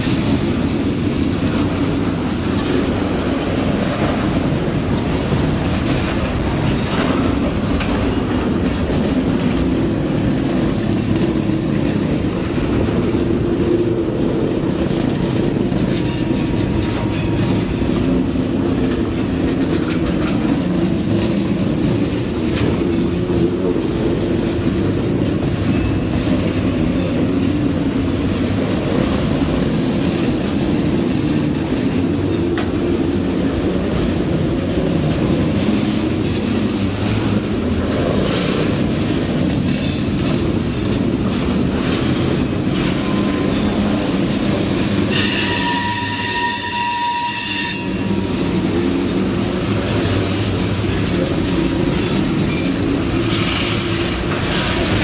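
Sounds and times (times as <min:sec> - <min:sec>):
freight train wheels rumbling on rails: 0:00.0 - 0:55.0
wheel squealing against rail: 0:44.9 - 0:48.4.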